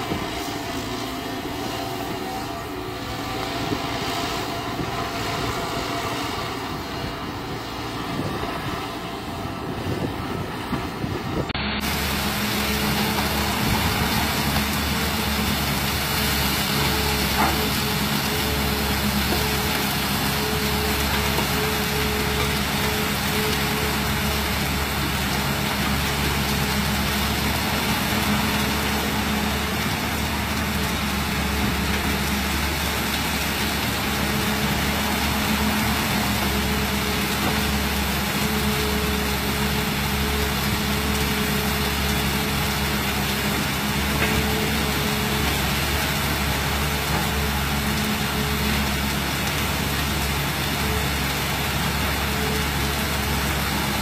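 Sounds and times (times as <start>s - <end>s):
excavator diesel engine: 0.0s - 54.0s
sand pouring into hopper: 11.8s - 54.0s.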